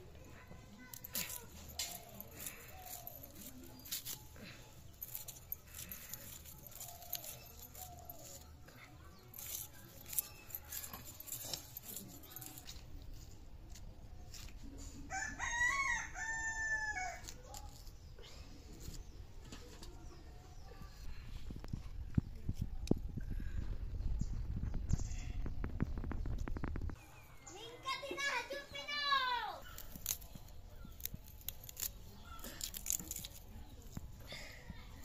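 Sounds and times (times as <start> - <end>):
onions being peeled: 0.4 - 15.2, 17.0 - 19.8, 29.6 - 35.0
rooster crowing: 15.1 - 17.2.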